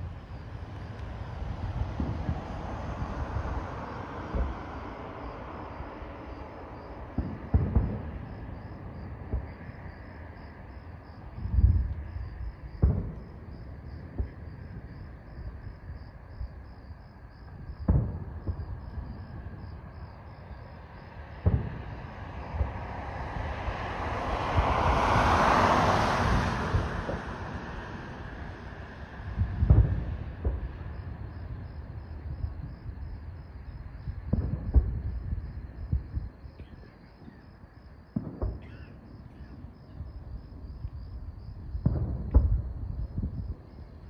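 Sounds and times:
crickets chirping: 0.0 - 44.0
distant fireworks booms: 0.0 - 44.0
car passing: 21.1 - 31.0.

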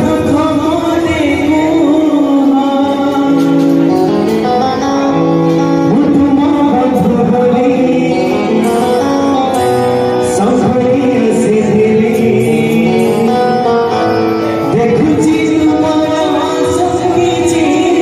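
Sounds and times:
keyboard: 0.0 - 18.0
man singing devotional melody: 0.0 - 18.0.

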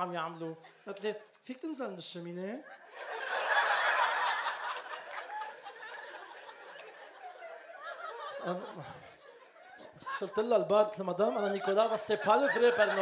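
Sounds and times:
audience laughing: 2.7 - 13.0.

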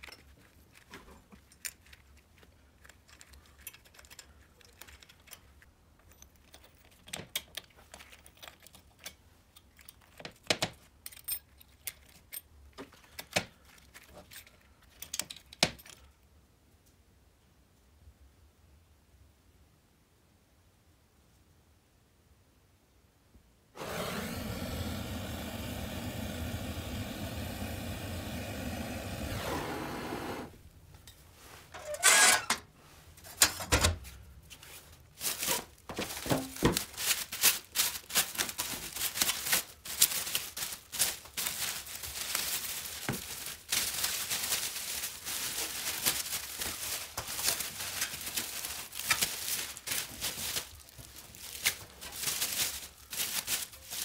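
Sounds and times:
gas torch hissing: 23.8 - 30.6
plastic wrap crinkling and tearing: 34.7 - 54.0.

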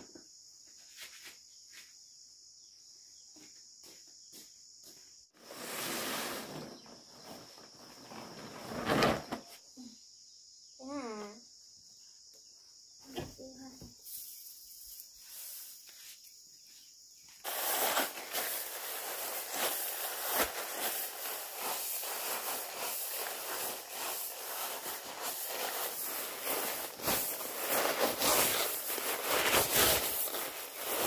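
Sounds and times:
crackling rustle of straw: 5.4 - 9.1, 13.4 - 31.0
high insect drone: 9.4 - 31.0.

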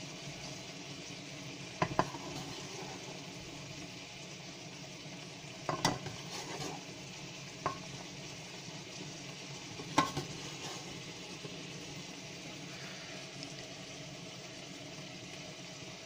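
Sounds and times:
steady hiss: 0.0 - 16.0
spoon clinking and scraping on pot: 5.7 - 6.9.

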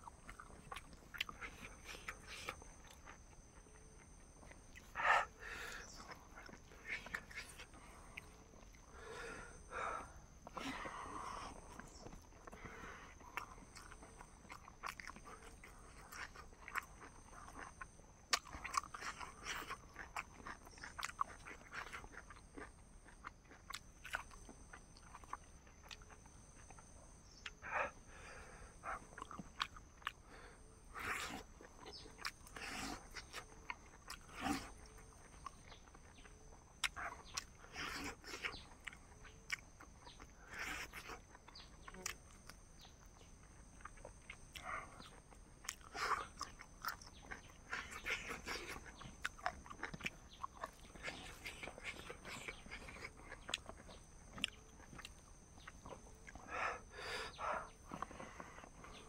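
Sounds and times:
person chewing and biting: 0.0 - 5.0, 10.6 - 27.6, 29.0 - 30.2, 30.9 - 56.4.

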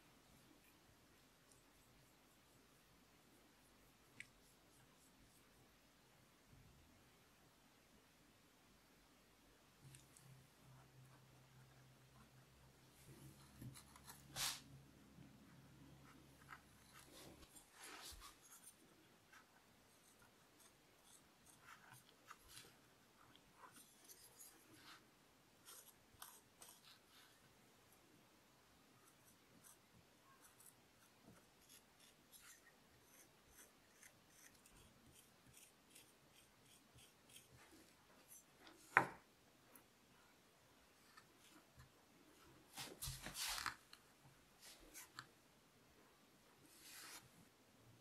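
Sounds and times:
wooden tool scratching clay: 29.0 - 38.9.

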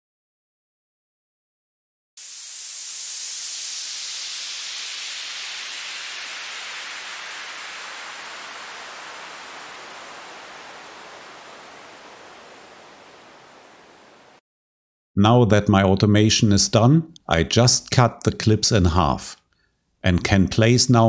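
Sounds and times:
synthesized white-noise downlifter: 2.2 - 14.4.

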